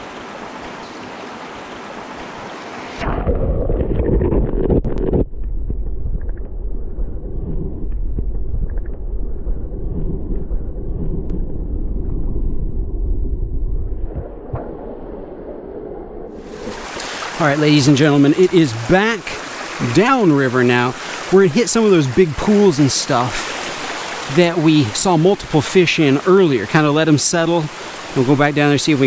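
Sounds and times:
mountain stream rushing: 0.0 - 3.1, 16.4 - 29.0
muffled underwater current rumble: 3.0 - 26.0.

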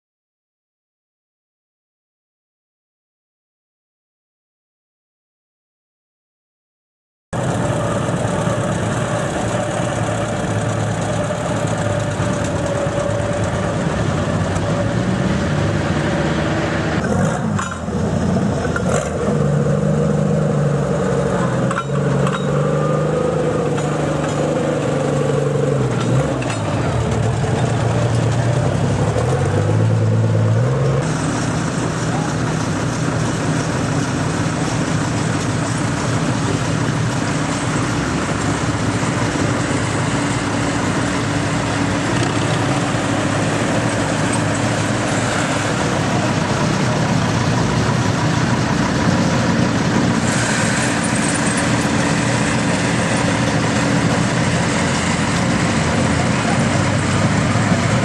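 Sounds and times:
tractor engines revving: 7.4 - 58.0
people talking: 26.4 - 29.7, 31.8 - 32.9, 52.8 - 58.0.

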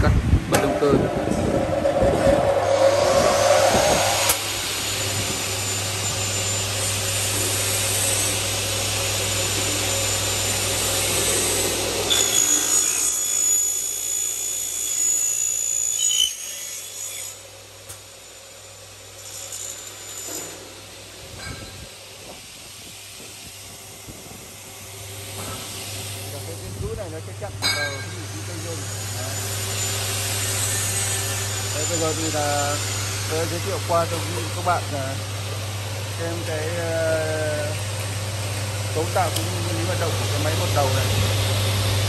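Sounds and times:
saw blade cutting aluminium whine: 0.5 - 20.8, 25.3 - 42.0
mitre saw motor humming: 28.2 - 42.0.

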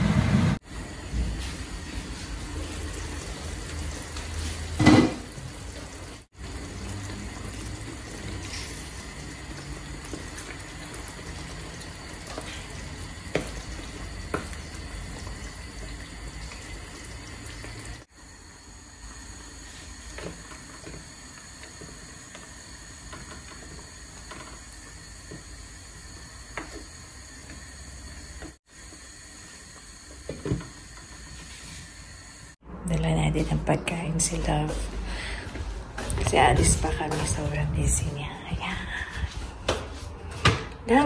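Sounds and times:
sauce bubbling in a pan: 0.7 - 32.6.

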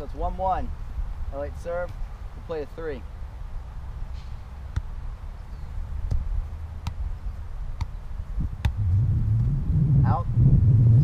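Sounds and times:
steady low rumble: 0.0 - 11.0
foot kicking ball: 6.0 - 7.1, 7.7 - 8.8.

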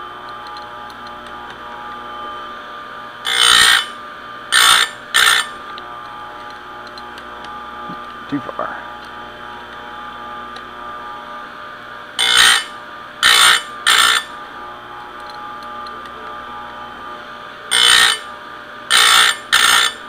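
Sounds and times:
sharpener motor running: 0.0 - 20.0
grinding wheel on chain teeth: 3.2 - 5.6, 12.2 - 14.3, 17.7 - 18.3, 18.9 - 20.0.

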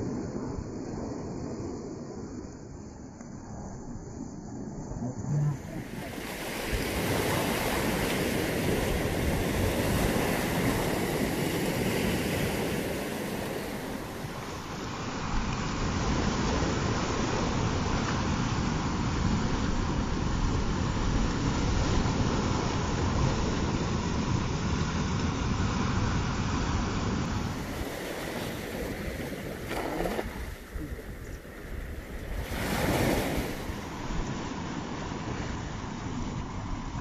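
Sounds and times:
wind buffeting microphone: 4.9 - 37.0
small waves washing on shore: 5.2 - 37.0.

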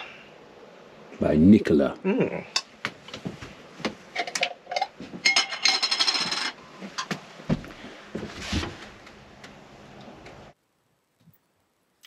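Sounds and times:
metal utensils clinking on crockery: 4.2 - 6.6.

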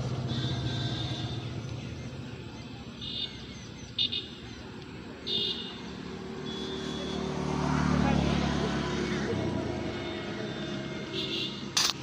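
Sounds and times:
bird chirping: 0.2 - 7.0.

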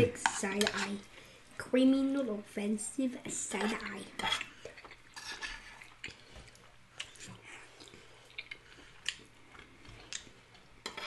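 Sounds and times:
soft chewing: 4.2 - 11.0.

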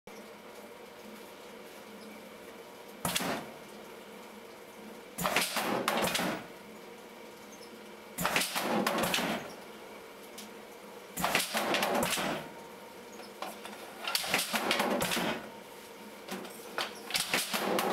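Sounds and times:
air-driven machine clattering: 3.0 - 3.8, 5.2 - 6.6, 8.2 - 9.7, 11.2 - 15.6, 16.3 - 17.9.

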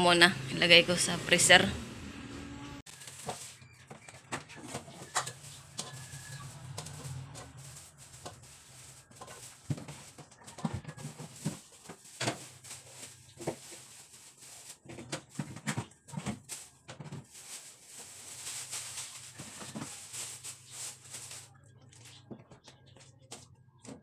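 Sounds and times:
plastic bags rustling: 2.9 - 4.0, 4.6 - 22.1
items clunking on fridge shelves: 3.0 - 21.4.

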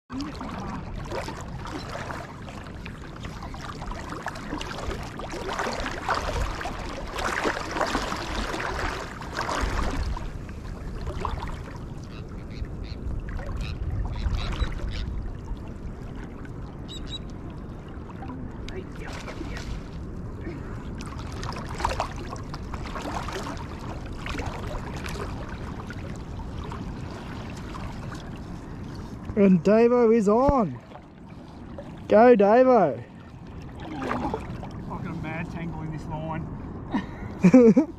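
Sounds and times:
wind buffeting microphone: 0.1 - 29.7
shallow water sloshing: 0.1 - 36.7.

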